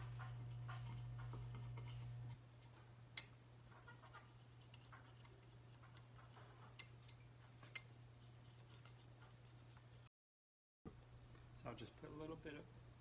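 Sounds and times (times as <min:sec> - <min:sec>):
low steady hum: 0:10.9 - 0:13.0.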